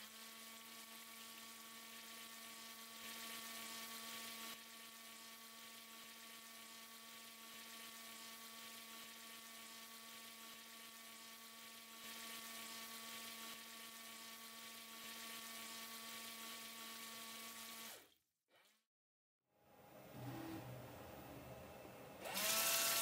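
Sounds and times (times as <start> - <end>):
electric pump humming: 19.9 - 23.0.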